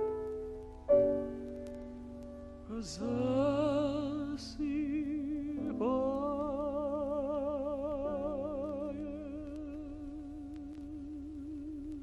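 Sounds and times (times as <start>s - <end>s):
piano accompaniment: 0.0s - 12.0s
tenor voice singing with vibrato: 2.7s - 12.0s.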